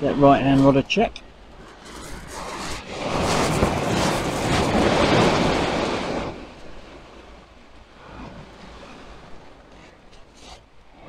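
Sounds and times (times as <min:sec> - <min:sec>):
wave washing up shingle beach: 0:01.5 - 0:09.8.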